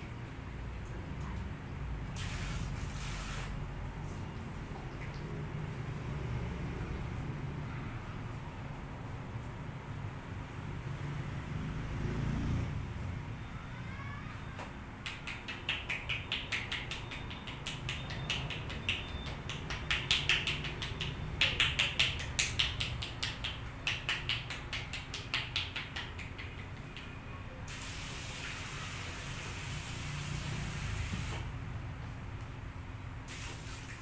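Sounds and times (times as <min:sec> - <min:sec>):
spray hiss: 0:02.2 - 0:03.6, 0:27.7 - 0:31.5, 0:33.3 - 0:34.0
rapid rhythmic tapping: 0:15.0 - 0:27.3.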